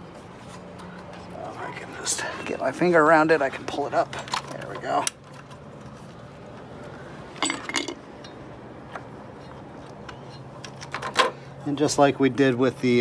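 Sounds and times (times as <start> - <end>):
low steady hum: 0.0 - 10.4
parts clinking in hands: 7.4 - 8.4.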